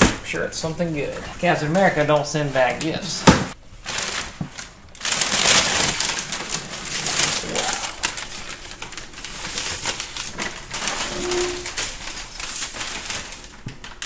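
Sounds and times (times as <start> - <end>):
packing paper crinkling: 3.7 - 14.0.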